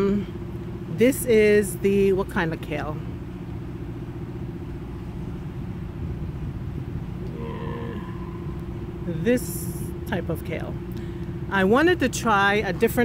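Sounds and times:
constant low hum: 0.0 - 13.0
low rumble: 4.5 - 11.5.

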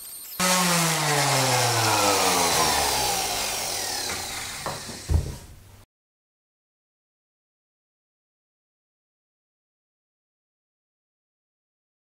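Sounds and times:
sander motor whine spinning down: 0.4 - 5.2
short thump: 4.2 - 5.6.

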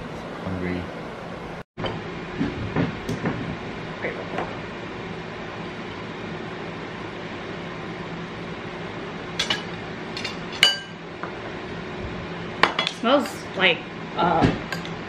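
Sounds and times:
room hum: 0.0 - 15.0
spoons clinking against ceramic bowls: 9.4 - 11.0.

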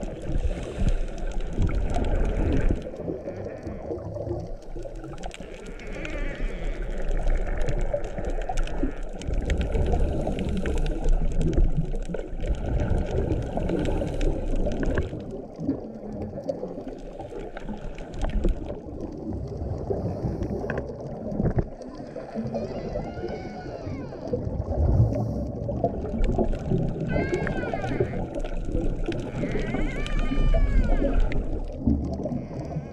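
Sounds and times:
air bubbling from scuba regulator: 0.0 - 5.9, 6.8 - 32.9.

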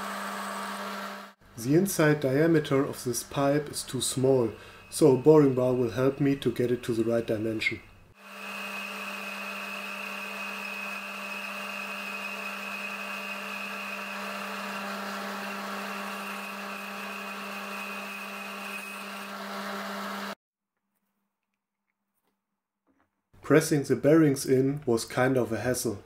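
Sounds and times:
metal lathe cutting: 8.2 - 20.4.

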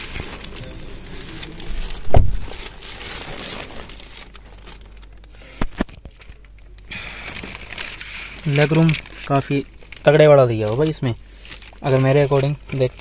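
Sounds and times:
plastic sheeting crinkling: 0.0 - 13.0
dull thump: 2.0 - 2.6.

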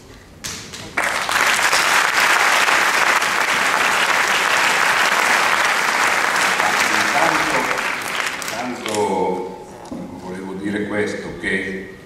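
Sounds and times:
audience applauding: 1.0 - 9.1.

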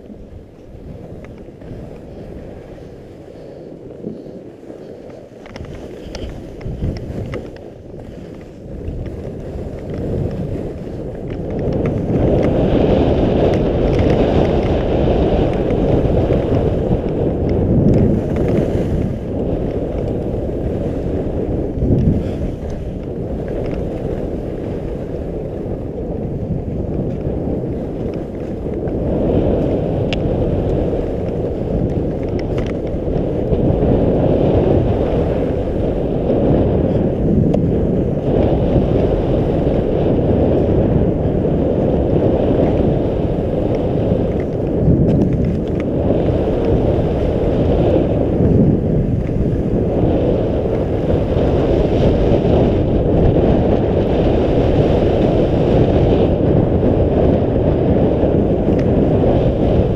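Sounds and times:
skis sliding over snow: 0.0 - 59.9
wind buffeting microphone: 0.0 - 59.9.

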